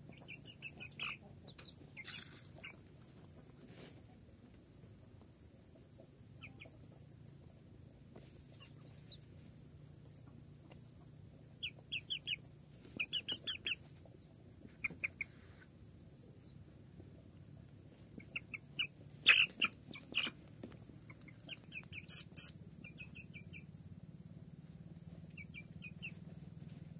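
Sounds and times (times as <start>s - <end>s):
parakeet chick chirping: 0.1s - 2.8s, 11.6s - 12.4s, 13.0s - 13.9s, 14.8s - 15.4s, 18.2s - 20.4s, 21.1s - 23.6s, 25.3s - 26.2s.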